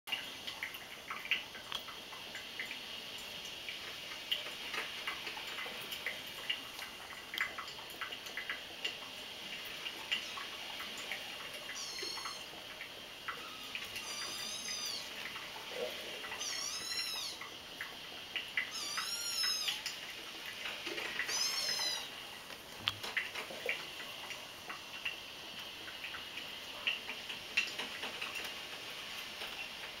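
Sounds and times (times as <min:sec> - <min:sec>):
kittens mewing: 0:10.1 - 0:12.6, 0:13.3 - 0:17.6, 0:18.7 - 0:20.0, 0:21.0 - 0:22.2.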